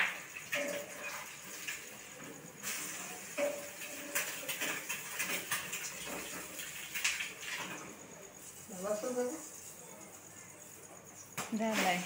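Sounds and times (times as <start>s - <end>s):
metal tongs scraping in a pan: 0.0s - 8.6s
food frying hiss: 0.0s - 12.0s.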